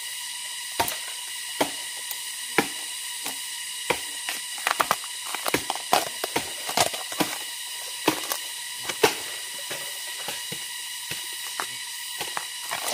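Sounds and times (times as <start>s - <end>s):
bamboo sheaths peeling and snapping: 2.6s - 9.3s, 10.3s - 12.9s.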